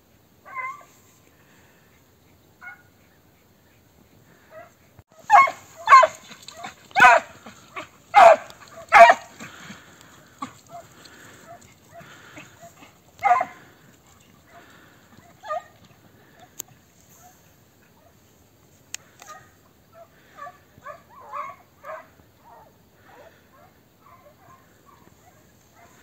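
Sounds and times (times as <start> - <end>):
dog barking and yelping: 0.4 - 0.9, 4.5 - 9.8, 10.4 - 18.2, 19.1 - 26.0.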